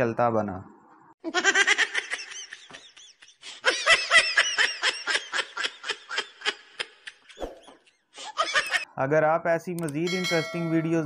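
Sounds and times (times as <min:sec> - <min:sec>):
high-pitched laughter: 0:01.2 - 0:08.9.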